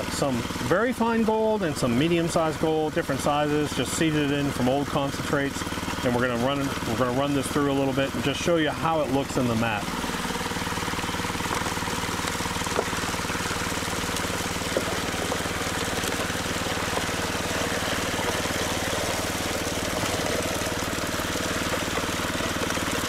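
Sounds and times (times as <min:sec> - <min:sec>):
small petrol engine running: 0:00.0 - 0:23.0
water rushing through sluice: 0:00.0 - 0:23.0
soil and rocks tipped: 0:10.4 - 0:23.0.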